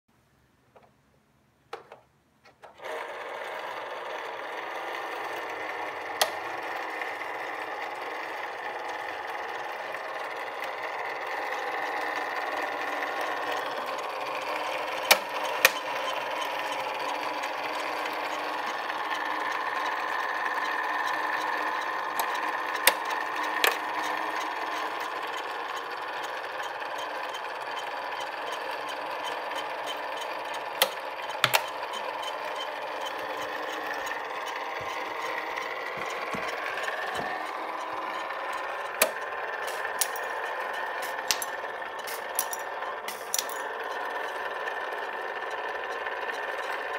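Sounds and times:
toy electric motor whirring: 2.6 - 46.9
sharp mechanism clicks: 29.6 - 44.5.

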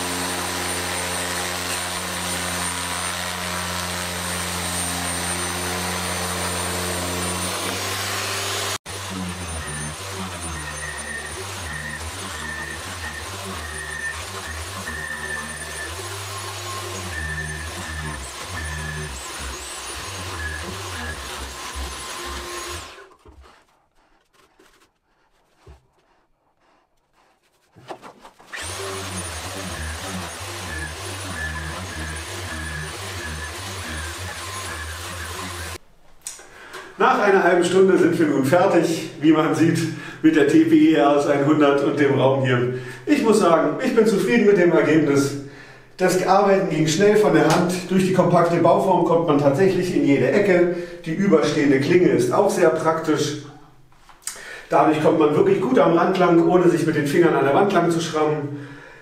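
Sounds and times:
carpet remover motor humming: 0.0 - 23.4, 28.5 - 35.8
blade scraping carpet residue: 0.0 - 35.8
faint scraping and handling noises: 23.1 - 28.5.

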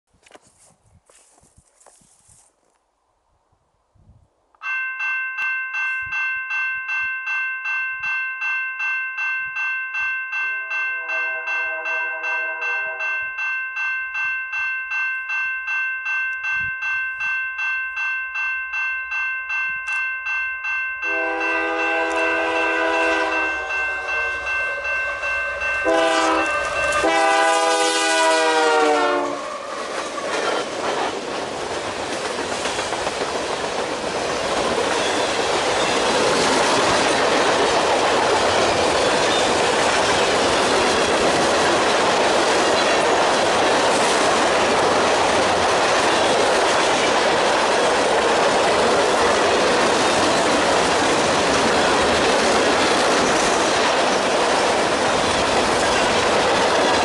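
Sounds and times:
crossing bell ringing: 4.6 - 30.1, 34.5 - 54.4
train horn: 11.0 - 13.2, 21.1 - 29.8
freight train rumbling past: 21.0 - 57.0.

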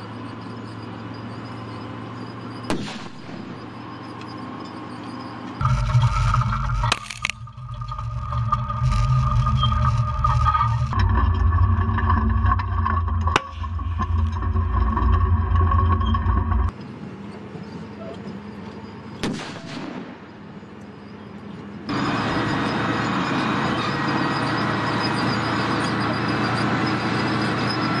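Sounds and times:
tracked vehicle engine drone: 0.0 - 28.0
sharp crack: 2.7 - 3.6, 6.1 - 7.5, 19.2 - 20.3.

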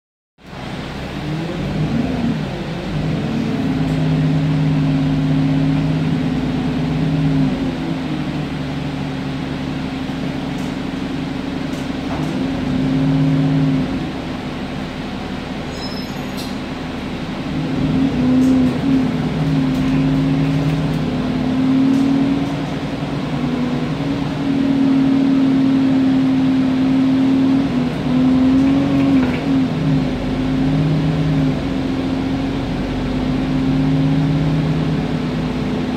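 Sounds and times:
bus engine droning: 0.4 - 35.9.

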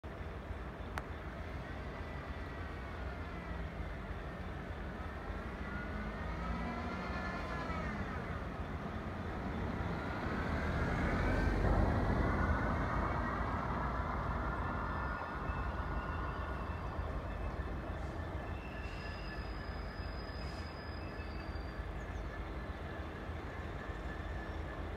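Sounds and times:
diesel locomotive engine rumbling: 0.0 - 24.9.

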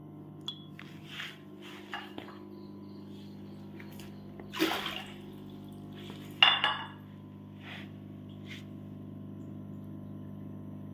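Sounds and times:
steady low hum: 0.0 - 10.9
container knocking clink: 6.3 - 7.0.

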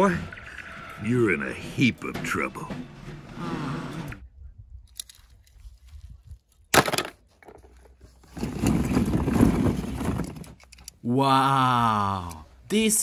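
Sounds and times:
plastic balls clattering: 6.7 - 10.9.

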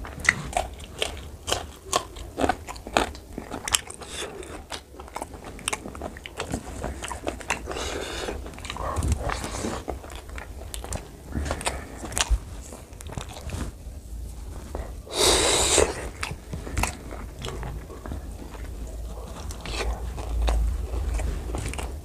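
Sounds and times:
man chewing food: 0.0 - 22.0.

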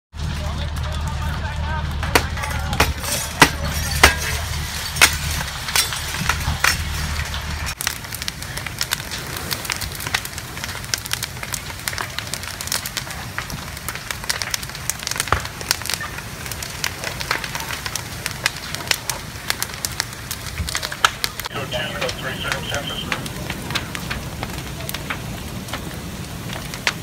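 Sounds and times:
low rumble: 0.1 - 11.8
house fire crackling and popping: 0.1 - 27.0
burning timber snapping: 0.2 - 27.0.

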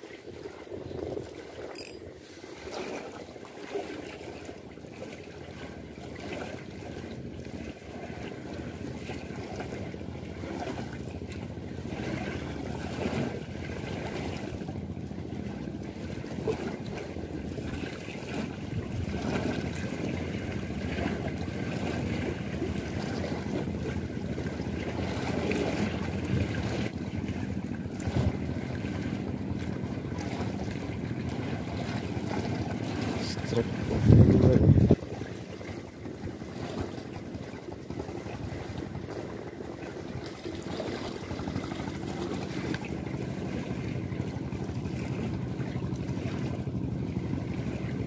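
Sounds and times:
water churning and splashing: 0.0 - 48.0
wind rumbling on microphone: 0.3 - 1.8, 14.0 - 48.0.

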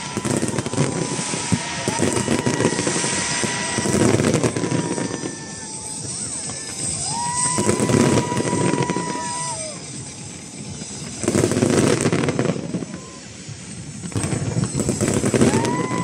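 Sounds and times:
fireworks popping and bursting: 0.0 - 16.0
high steady whistling tone: 0.0 - 16.0.

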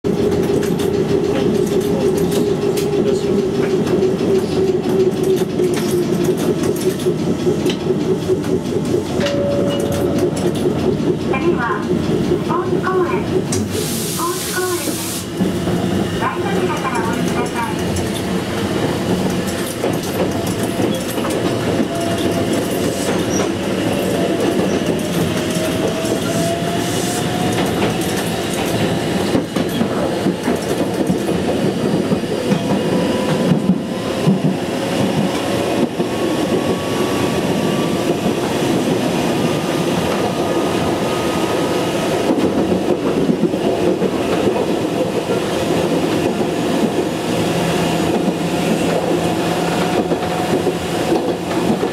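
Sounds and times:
train wheels rumbling on rail: 0.0 - 51.9
clicking over rail joints: 16.5 - 26.4.

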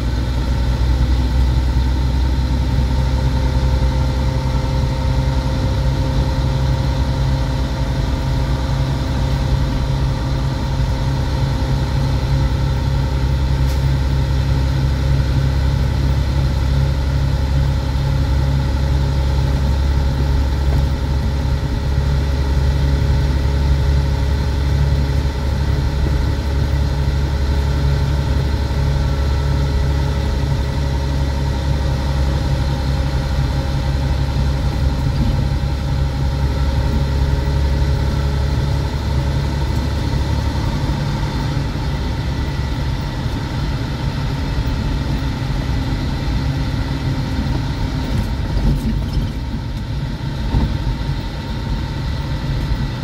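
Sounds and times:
truck diesel engine drone: 0.0 - 53.0.

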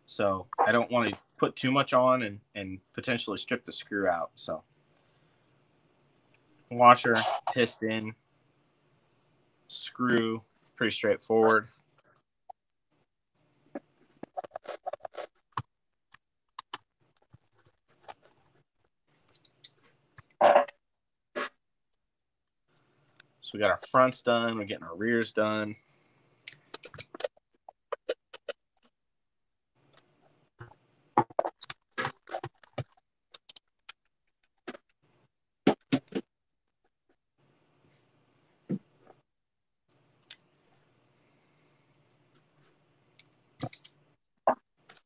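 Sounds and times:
small parts clicking: 19.2 - 20.4, 25.7 - 27.3, 43.2 - 44.0
metal parts clicking and tapping: 43.2 - 44.0.

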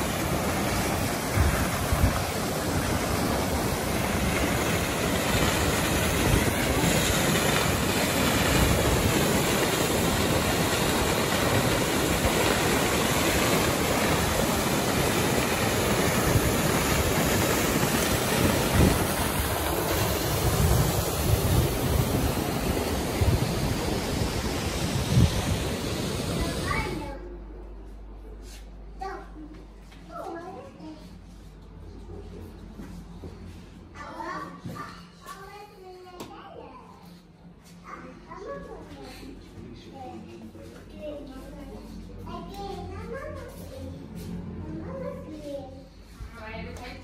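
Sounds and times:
waterfall roaring: 0.0 - 27.1.

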